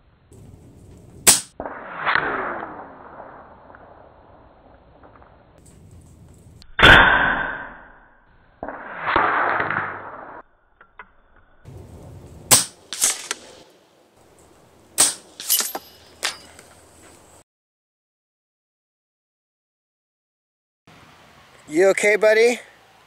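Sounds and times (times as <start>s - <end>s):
burst of noise: 0.3s - 5.6s
air rifle shot: 1.2s - 4.0s, 6.7s - 7.8s, 8.6s - 10.4s, 12.5s - 13.6s, 15.0s - 15.6s.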